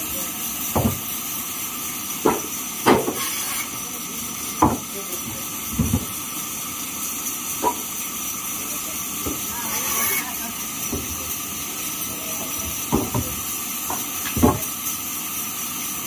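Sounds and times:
band saw running: 0.0s - 16.0s
wooden planks knocking: 0.7s - 1.1s, 2.2s - 3.2s, 4.6s - 4.8s, 5.7s - 6.1s, 12.6s - 14.7s.

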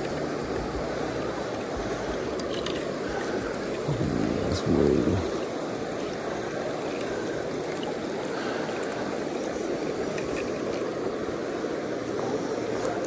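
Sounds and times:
river flowing over rocks: 0.0s - 13.0s.

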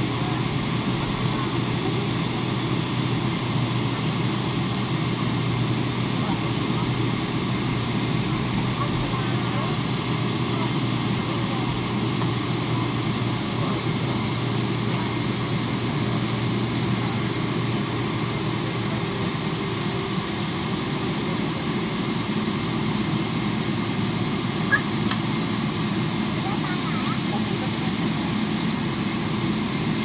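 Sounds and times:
jet engines humming in cabin: 0.0s - 30.0s.

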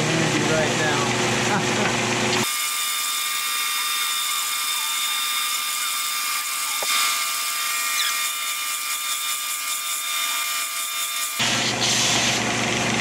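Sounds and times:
belt sander whirring: 1.8s - 12.5s
metal plate on sanding belt: 2.4s - 12.4s.

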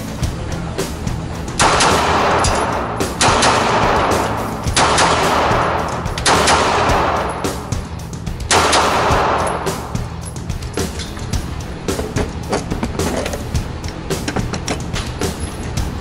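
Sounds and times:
background music: 0.0s - 16.0s
pistol shots echoing: 1.6s - 10.1s.

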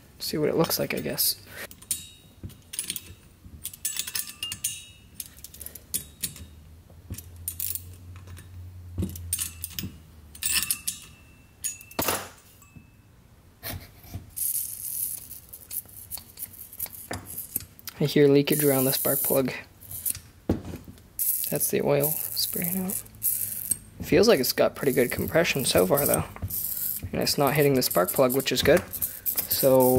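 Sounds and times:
metal tool clinks and taps: 1.7s - 13.0s.

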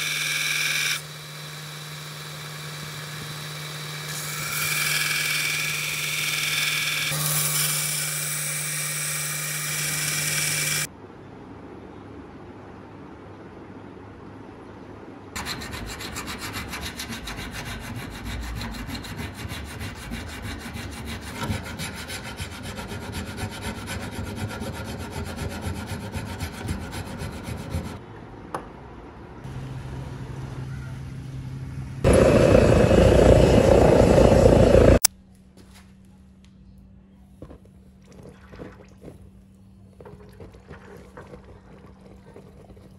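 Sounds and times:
hand file rasping on steel: 15.4s - 28.0s
low hum: 29.1s - 38.0s
forge roaring: 32.0s - 35.1s.

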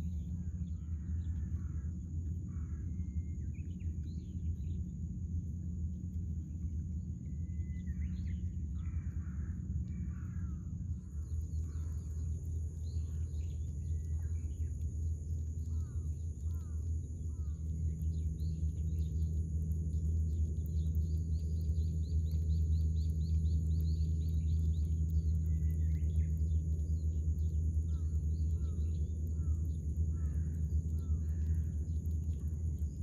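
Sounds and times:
high whine: 0.0s - 33.0s
low rumble: 0.0s - 33.0s
bird calls: 7.2s - 14.9s, 15.5s - 33.0s.

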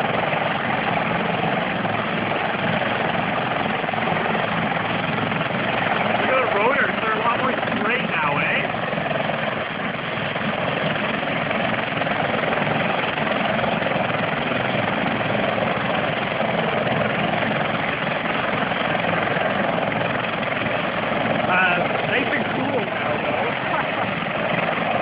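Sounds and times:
helicopter rotor running: 0.0s - 25.0s.

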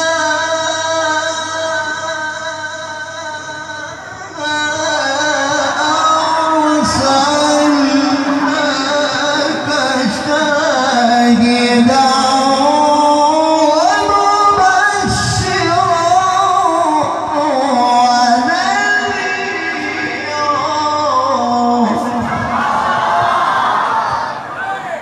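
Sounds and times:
man chanting recitation into microphone: 0.0s - 23.0s.

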